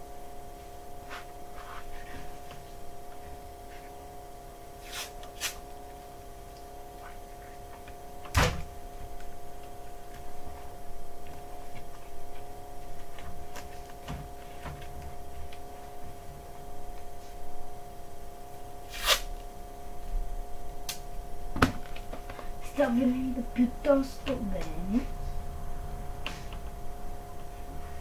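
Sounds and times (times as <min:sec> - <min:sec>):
background hum: 0:00.0 - 0:28.0
masking tape ripping: 0:18.9 - 0:19.3.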